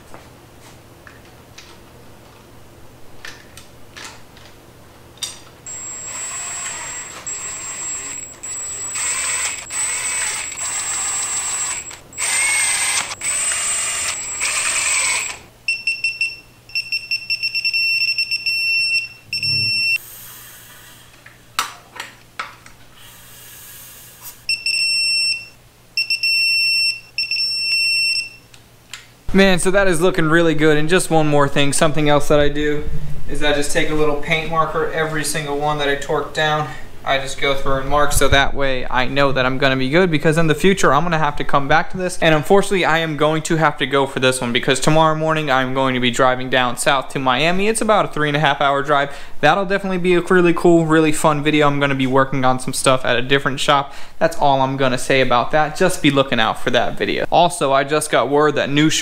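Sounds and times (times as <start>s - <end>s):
electronic torque wrench beeping: 5.7s - 20.0s, 24.5s - 28.4s.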